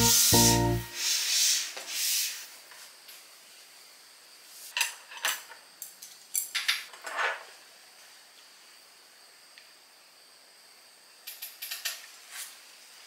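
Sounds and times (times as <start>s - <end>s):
jingly music: 0.0s - 1.0s.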